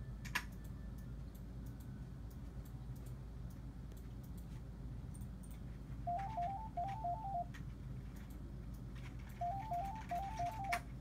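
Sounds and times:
telephone waiting melody beeps: 6.1 - 7.5, 9.4 - 10.8.

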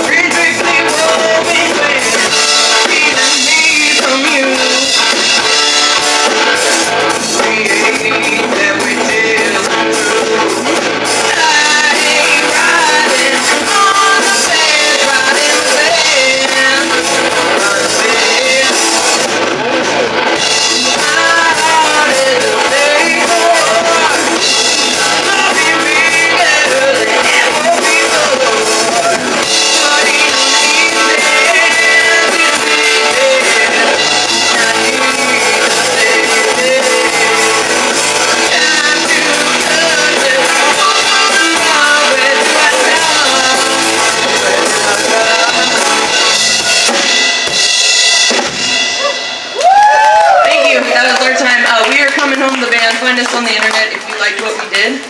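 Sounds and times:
bass guitar: 0.0 - 55.0
drum kit: 0.0 - 55.0
overdriven electric guitar: 0.0 - 55.0
woman singing: 11.2 - 18.8, 20.8 - 37.7, 38.3 - 45.9.

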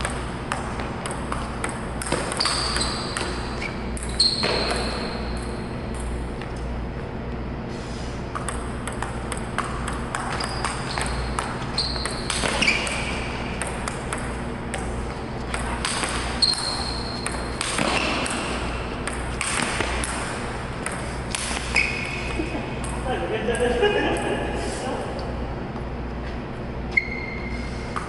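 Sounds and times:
table tennis ball clicking: 0.0 - 6.6, 8.3 - 23.0
steady low hum: 0.0 - 28.0
short high squeaks: 2.3 - 5.4, 10.3 - 13.2, 16.3 - 17.3, 21.6 - 22.2, 26.9 - 27.8.

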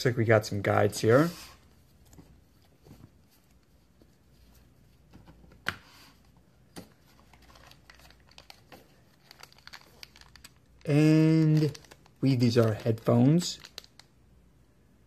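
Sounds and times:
paper packaging rustling: 6.8 - 14.1.

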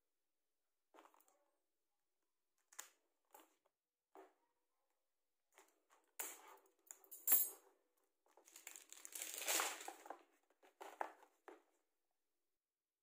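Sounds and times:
plastic wrap crinkling: 8.3 - 10.3.

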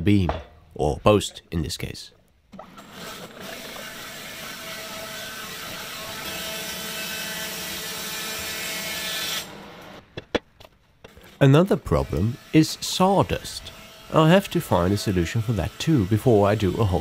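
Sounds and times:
bandsaw mill cutting log: 2.6 - 10.0, 11.1 - 17.0.

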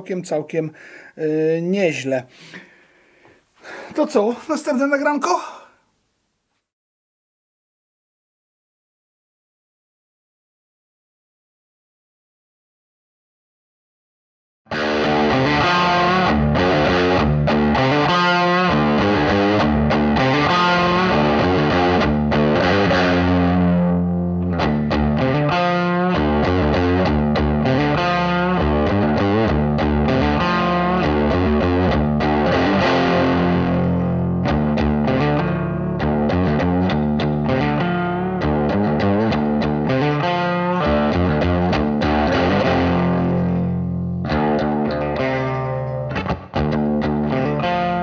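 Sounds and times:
distorted electric guitar: 14.7 - 48.0.

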